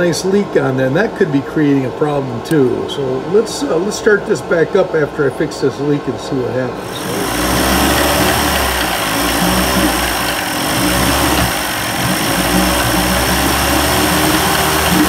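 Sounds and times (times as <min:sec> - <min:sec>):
outboard motor running unevenly: 0:06.8 - 0:15.0.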